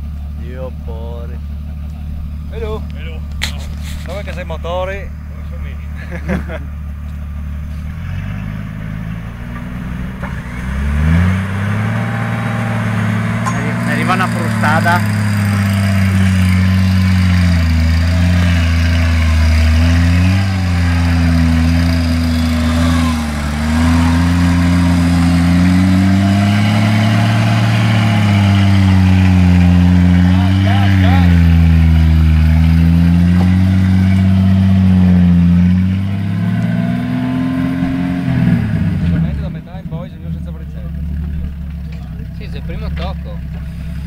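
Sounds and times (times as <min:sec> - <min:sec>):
off-road vehicle engine revving: 0:00.0 - 0:44.0.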